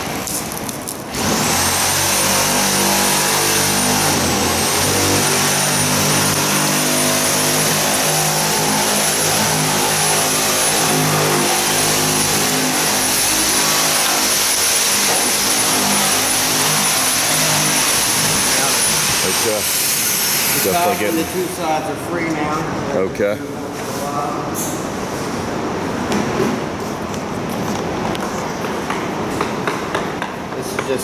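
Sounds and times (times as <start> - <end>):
motor running with high whine: 1.1 - 21.6.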